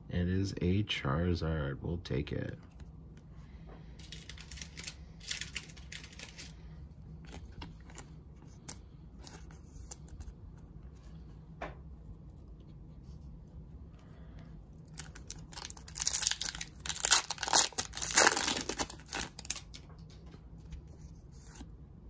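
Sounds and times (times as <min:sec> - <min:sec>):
plastic card sleeve crinkling: 0:02.5 - 0:11.3, 0:14.4 - 0:21.7.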